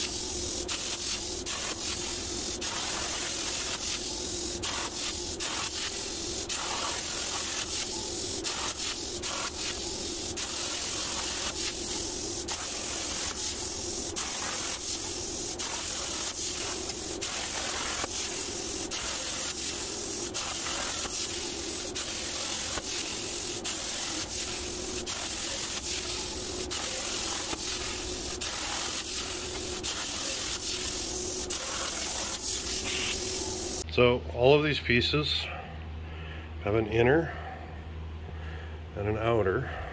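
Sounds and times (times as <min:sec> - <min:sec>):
plasma cutter hissing: 0:00.0 - 0:33.8.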